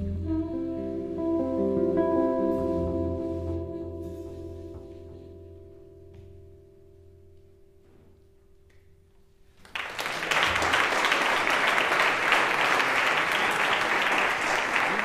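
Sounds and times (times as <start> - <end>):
audience applause: 9.6 - 15.0.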